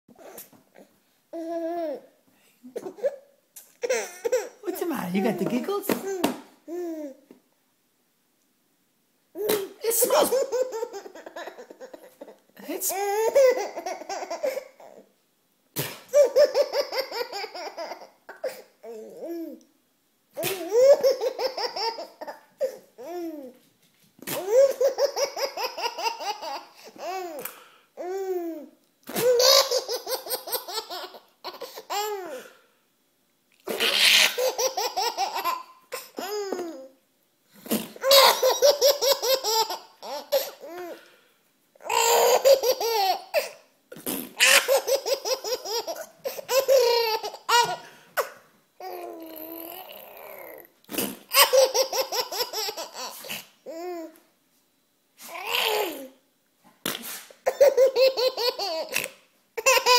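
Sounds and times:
baby laughing: 2.7 - 4.6, 9.4 - 15.0, 16.0 - 19.6, 20.4 - 23.5, 24.2 - 32.4, 33.7 - 36.9, 37.9 - 41.0, 41.8 - 43.6, 44.4 - 50.6, 51.3 - 54.0, 55.3 - 56.1, 57.5 - 59.9.

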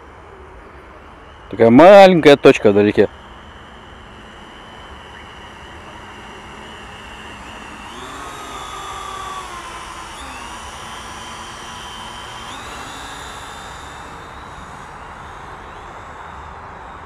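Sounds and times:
drone propellers whining: 0.0 - 17.0.

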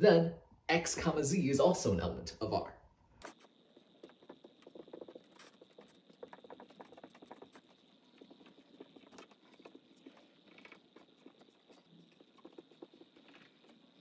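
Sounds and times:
marker writing on whiteboard: 3.2 - 14.0.

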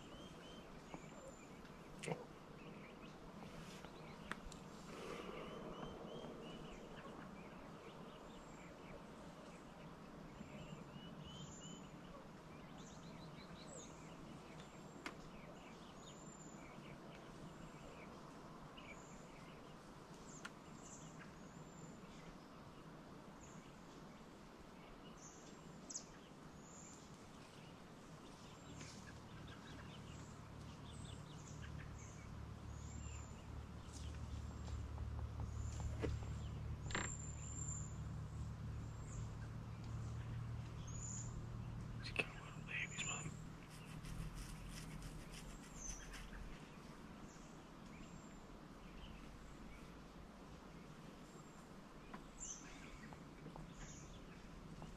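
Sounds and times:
birds chirping and whistling: 0.0 - 2.0, 3.8 - 8.9, 35.4 - 43.9.

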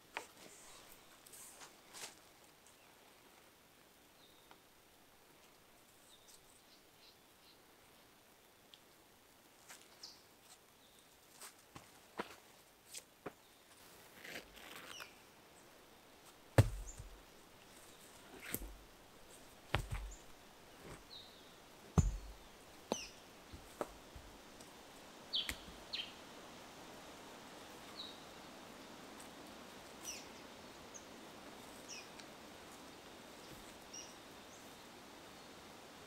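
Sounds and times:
small birds chirping: 5.9 - 7.7, 16.6 - 24.4, 25.3 - 26.2, 30.0 - 32.2, 32.8 - 35.6
stones knocking: 16.6 - 17.2, 18.3 - 18.8, 19.4 - 21.0, 22.0 - 24.3.

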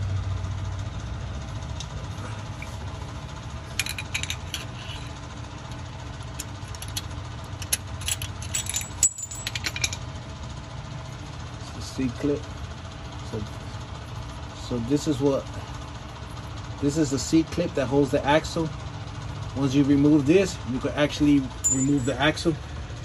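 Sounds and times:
metallic clinks and rattles: 3.7 - 5.0, 7.6 - 10.0, 21.6 - 22.5.

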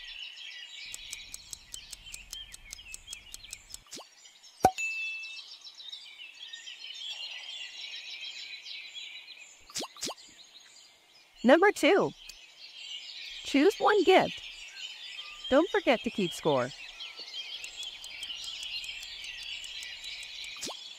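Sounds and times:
birds chirping: 0.0 - 4.8, 5.5 - 20.9
rapid timer ticking: 0.9 - 4.0, 12.1 - 12.4, 17.4 - 20.9.

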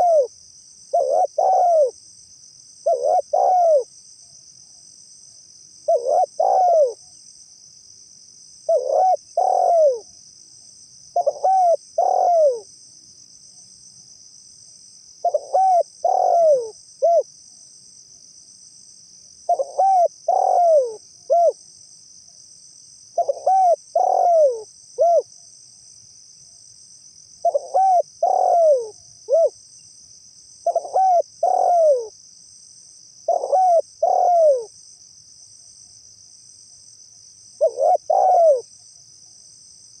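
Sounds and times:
dove cooing: 0.0 - 0.3, 0.9 - 2.0, 2.8 - 3.9, 5.9 - 7.0, 8.7 - 10.1, 11.2 - 12.7, 15.2 - 17.3, 19.5 - 21.6, 23.2 - 25.3, 27.4 - 29.6, 30.6 - 32.1, 33.3 - 34.7, 37.6 - 38.7.

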